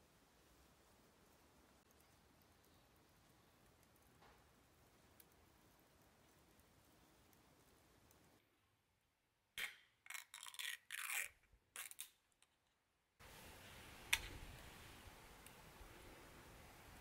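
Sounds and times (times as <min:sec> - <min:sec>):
drink can opening: 0:09.6 - 0:12.2.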